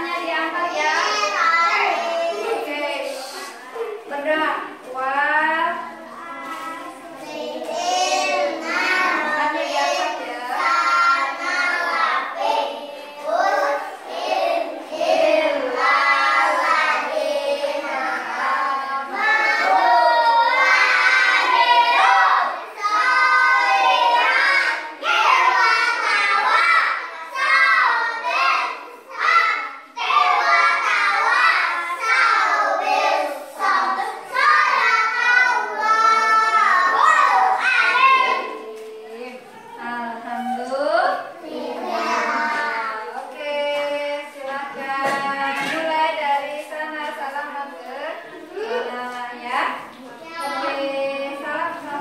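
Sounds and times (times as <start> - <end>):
children singing: 0.0 - 4.0, 5.8 - 46.8, 49.8 - 52.0.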